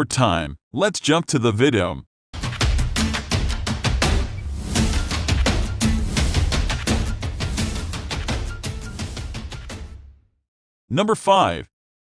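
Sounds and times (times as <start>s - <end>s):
music with drum beat and heavy bass: 2.4s - 10.0s.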